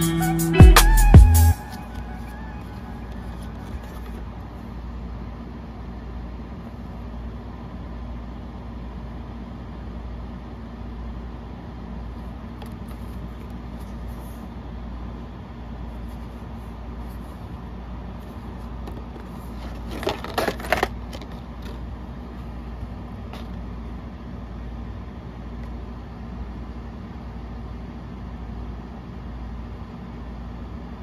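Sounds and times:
steady low hum: 0.0s - 31.0s
packaging clicks and rustles: 18.8s - 21.9s.

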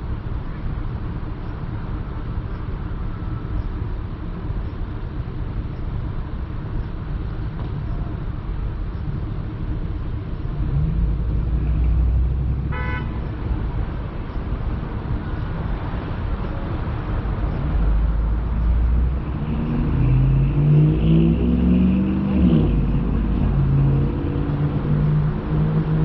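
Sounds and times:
road noise rumble: 0.0s - 26.0s
car engine accelerating: 15.7s - 26.0s.

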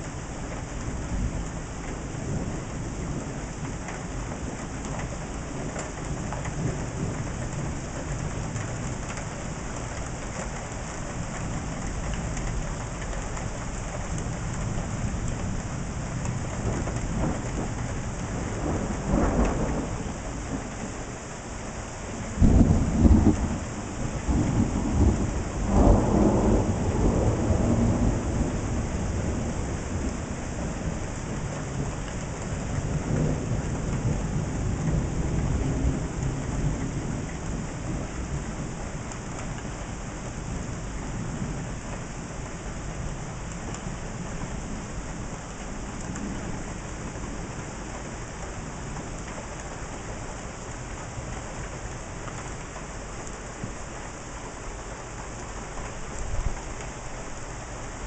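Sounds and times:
steady rain: 0.0s - 58.0s
thunder rumbling: 11.2s - 20.7s, 22.3s - 38.8s
loud thunderclap: 16.6s - 20.6s, 22.4s - 23.6s, 24.3s - 31.0s.

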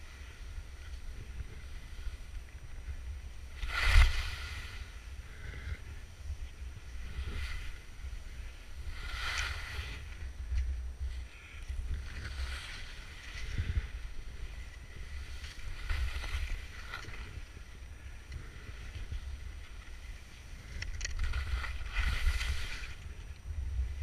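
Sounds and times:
wind rumble on microphone: 0.0s - 24.0s
skis hissing through snow: 3.0s - 5.2s, 6.6s - 10.4s, 11.1s - 17.8s, 21.2s - 23.2s.

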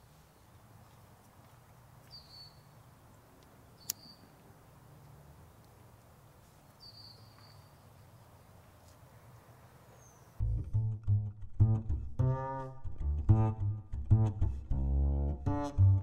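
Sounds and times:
high bird chirps: 2.1s - 2.7s, 3.8s - 4.4s, 6.8s - 7.8s.

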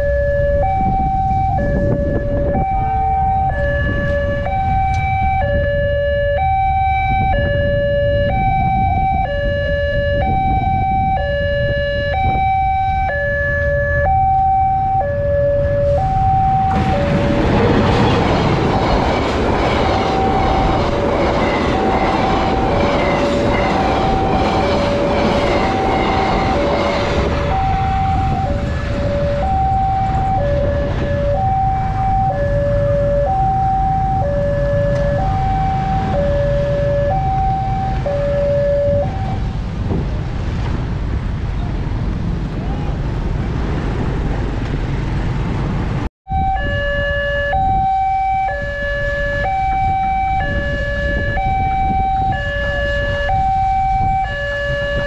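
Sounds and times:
train wheels rumbling and clattering: 15.9s - 32.0s.

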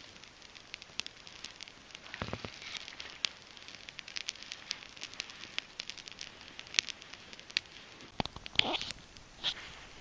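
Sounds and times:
campfire crackling and popping: 0.0s - 10.0s.

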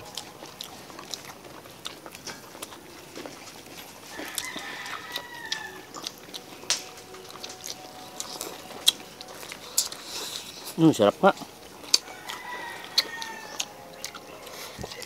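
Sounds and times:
people chewing: 0.0s - 15.0s
rooster crowing: 4.1s - 6.0s, 11.9s - 15.0s.

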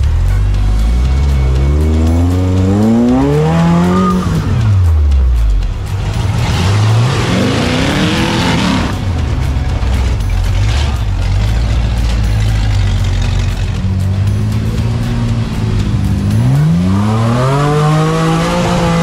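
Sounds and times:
buggy engine revving: 0.0s - 19.0s.

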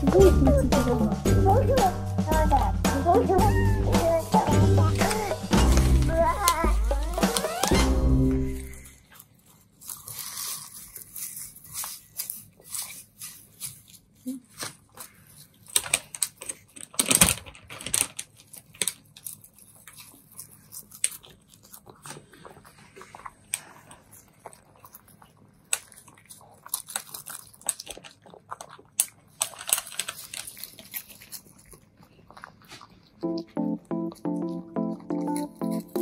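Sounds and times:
cats chewing crunchy treats: 8.4s - 36.0s.

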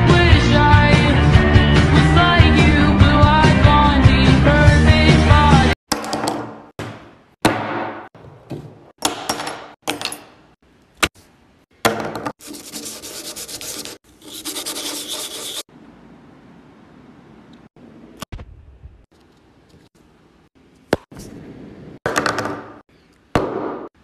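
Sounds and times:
plastic case sanding on sandpaper: 12.4s - 15.7s.

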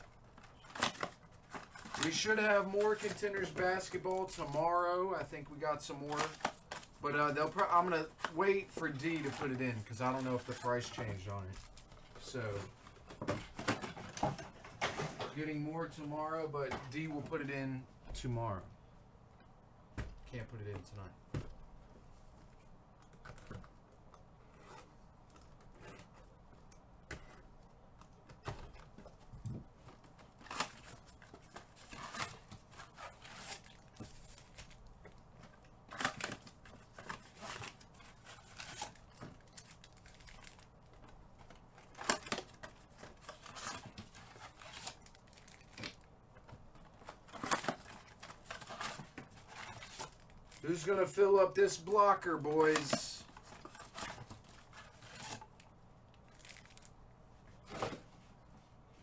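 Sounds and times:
wrappers tearing and crinkling: 0.0s - 12.7s, 30.2s - 40.7s, 41.4s - 46.1s, 47.0s - 57.0s.

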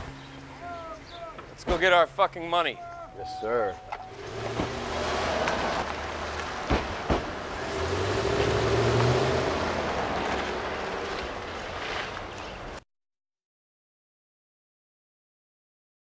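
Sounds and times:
sharp thumps: 3.9s - 7.5s
car engine pulling away: 4.0s - 12.6s.

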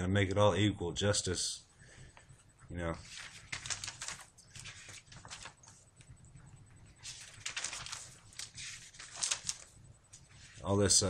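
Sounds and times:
paper rustling and shuffling: 2.8s - 11.0s.

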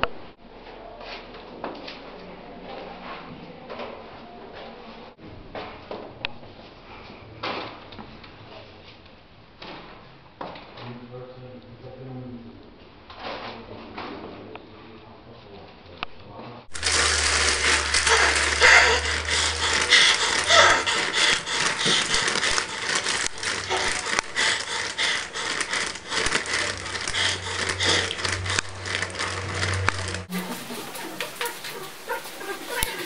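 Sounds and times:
dense crackling and scraping: 16.7s - 33.0s
low hum: 16.7s - 33.0s.

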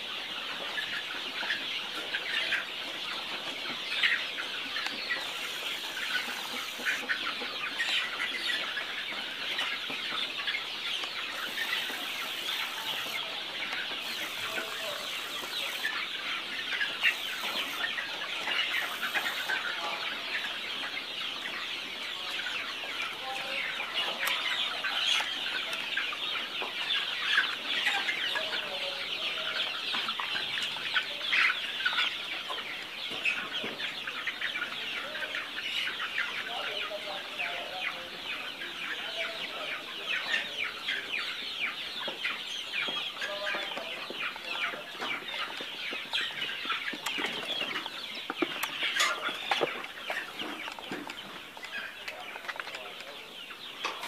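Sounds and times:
chicks calling: 0.0s - 54.0s.

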